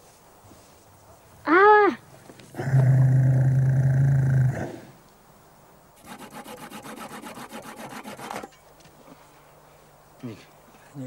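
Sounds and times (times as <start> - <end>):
low animal call: 1.5 - 5.0
hand saw cutting antler: 6.0 - 8.6.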